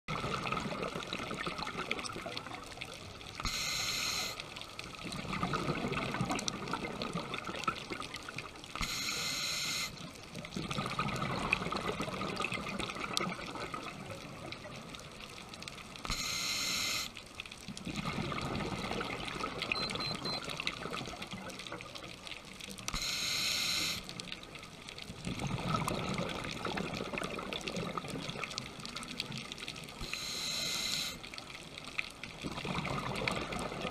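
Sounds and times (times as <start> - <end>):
regulator inhalation hiss: 3.4 - 4.5, 8.8 - 10.0, 16.1 - 17.2, 22.9 - 24.1, 30.0 - 31.2.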